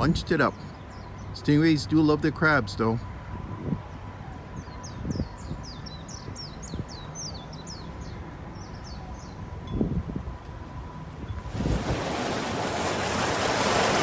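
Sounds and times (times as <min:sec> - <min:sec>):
bird chirping: 0:00.5 - 0:01.5, 0:03.9 - 0:09.5.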